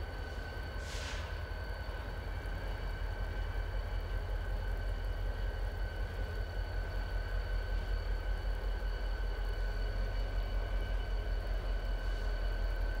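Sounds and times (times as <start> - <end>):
diesel locomotive rumble: 0.0 - 13.0.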